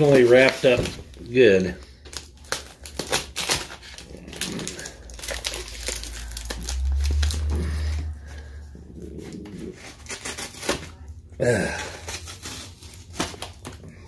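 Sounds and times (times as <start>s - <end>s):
packaging tape crinkling: 0.0s - 8.6s, 9.2s - 14.0s
low handling rumble: 4.2s - 9.9s.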